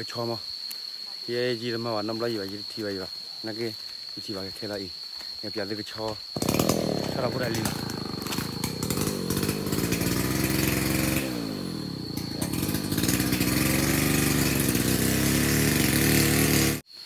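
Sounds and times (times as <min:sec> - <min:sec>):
small engine running: 0:06.4 - 0:16.8.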